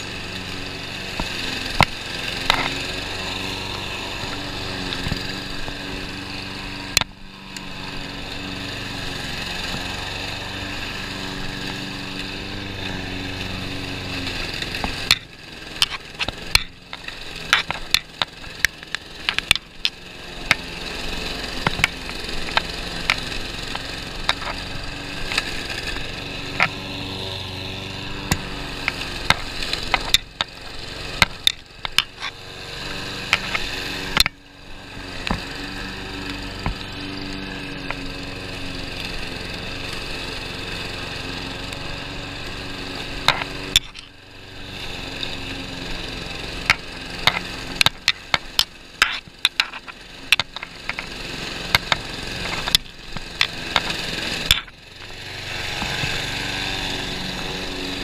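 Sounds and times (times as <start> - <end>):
lawn mower engine running: 0.0 - 58.0
mower blades striking debris: 12.9 - 38.1, 43.1 - 44.2, 46.4 - 56.5.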